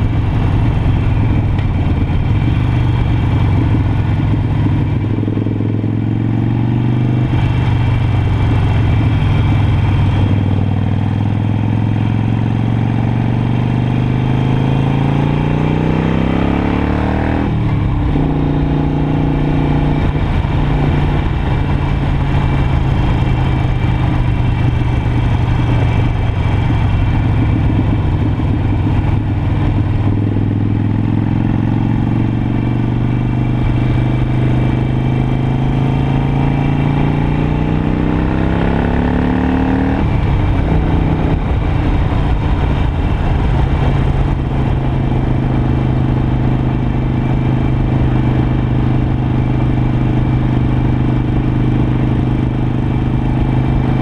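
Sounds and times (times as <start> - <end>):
motorcycle engine running: 0.0 - 54.0
wind on microphone: 39.9 - 45.6.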